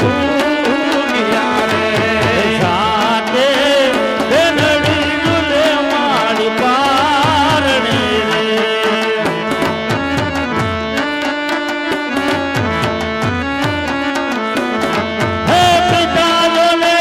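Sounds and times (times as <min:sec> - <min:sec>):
person singing ornamented melody: 0:00.0 - 0:09.9, 0:15.4 - 0:17.0
hand drums beating: 0:00.0 - 0:17.0.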